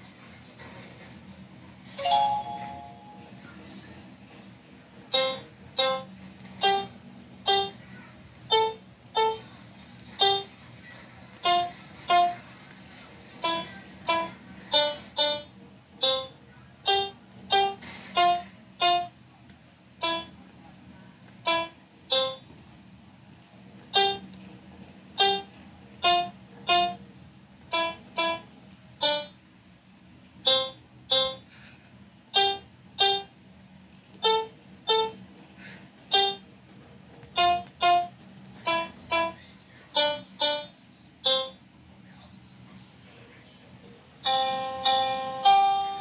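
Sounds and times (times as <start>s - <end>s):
electronic piano-like notes: 5.1s - 7.8s, 8.5s - 9.5s, 10.2s - 10.6s, 11.4s - 12.5s, 13.4s - 19.2s, 20.0s - 20.4s, 21.4s - 22.5s, 23.9s - 24.3s, 25.2s - 27.0s, 27.7s - 29.4s, 30.4s - 31.5s, 32.3s - 33.4s, 34.2s - 35.2s, 36.1s - 36.5s, 37.3s - 41.7s, 44.2s - 46.0s.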